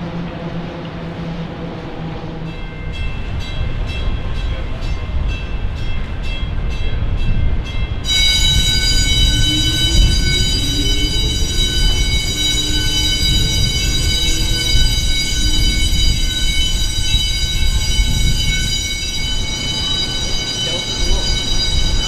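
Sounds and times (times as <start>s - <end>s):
warning bell ringing: 2.6s - 22.0s
low machinery rumble: 7.1s - 22.0s
low hum rising in pitch: 8.0s - 21.2s
shrill warning tone: 8.0s - 22.0s.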